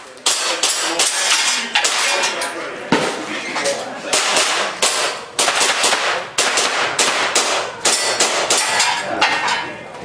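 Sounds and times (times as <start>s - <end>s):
airsoft pistol shots: 4.1s - 8.8s.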